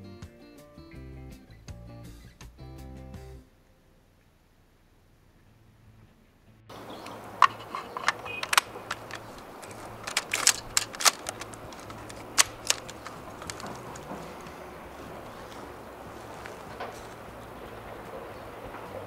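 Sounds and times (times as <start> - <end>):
outdoor background noise: 0.0 - 19.0
airsoft rifle clicks and clacks: 7.0 - 14.2.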